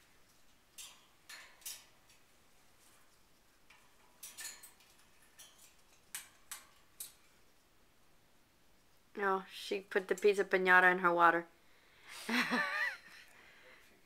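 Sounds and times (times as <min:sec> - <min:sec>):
parrot clicking in wire cage: 0:00.1 - 0:07.6.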